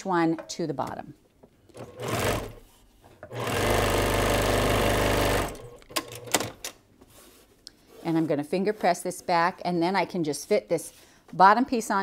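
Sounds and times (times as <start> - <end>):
sewing machine stitching: 1.7 - 2.6, 3.3 - 6.6.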